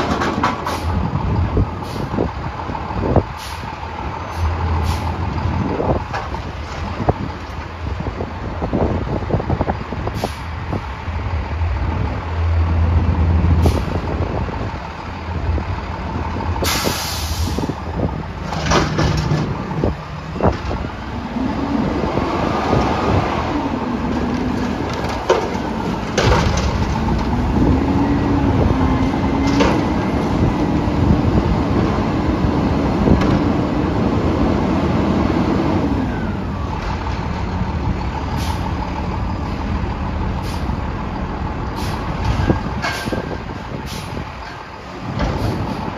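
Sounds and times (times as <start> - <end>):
diesel engine revving: 0.0 - 45.9
air hiss: 16.6 - 17.8.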